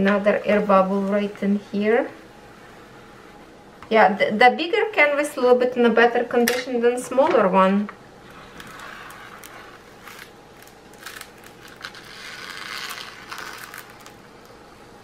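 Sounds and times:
plastic film peeling off: 8.2s - 14.6s.

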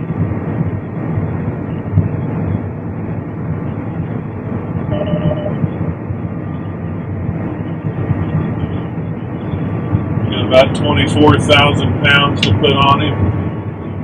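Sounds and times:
combine harvester engine drone: 0.0s - 14.0s
faint steady whine: 0.0s - 14.0s
short tone: 4.9s - 5.6s.

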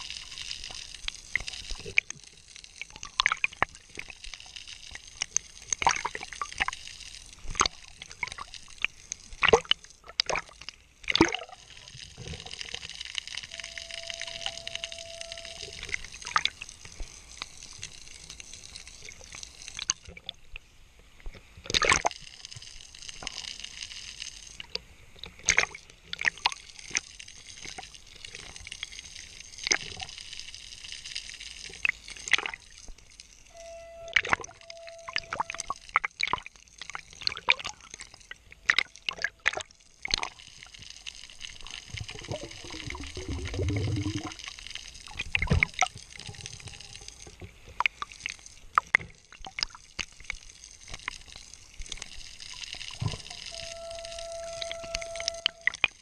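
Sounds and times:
low gurgle: 0.0s - 56.0s
underwater swishing: 0.0s - 56.0s
sharp clicks and pops: 21.2s - 33.3s, 34.1s - 56.0s.

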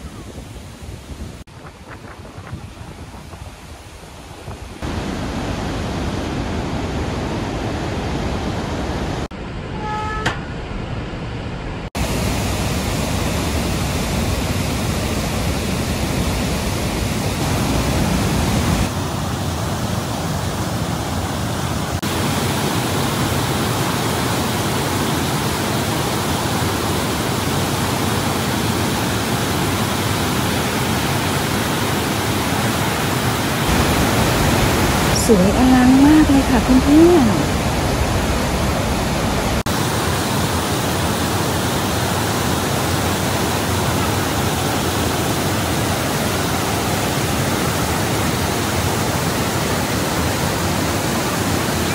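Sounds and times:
waterfall roaring: 0.0s - 9.4s, 10.8s - 51.9s
brief high tone: 9.7s - 10.6s.

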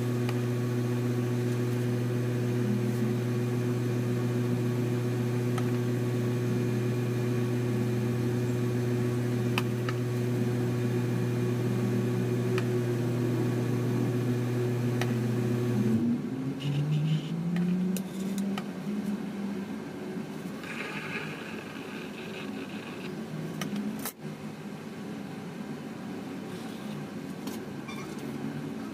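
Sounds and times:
turntable motor humming: 0.0s - 16.1s, 20.4s - 24.0s.

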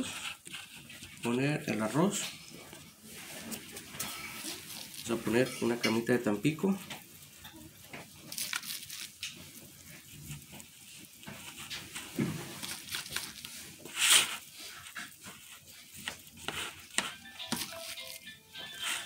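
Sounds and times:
gloved hands clicking and rustling: 6.8s - 18.4s.

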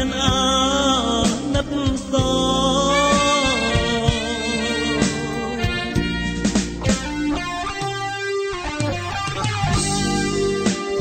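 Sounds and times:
person singing: 0.0s - 6.4s
band with steady drum beat: 1.2s - 7.3s, 9.6s - 10.1s.

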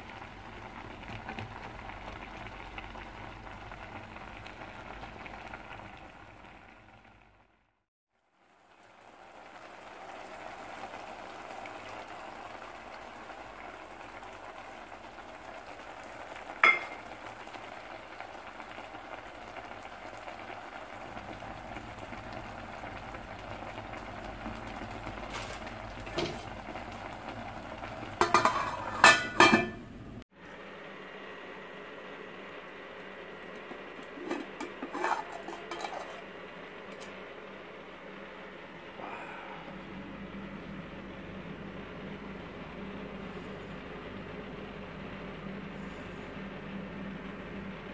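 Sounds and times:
pot bubbling: 0.0s - 47.9s
lid clanking on pot: 16.6s - 17.1s, 28.2s - 29.8s, 34.0s - 36.2s.

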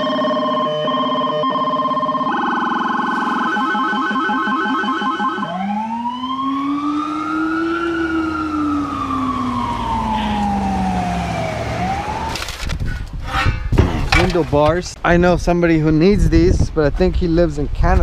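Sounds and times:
police siren wailing: 0.0s - 12.5s
deep low siren rumble: 0.0s - 12.7s.

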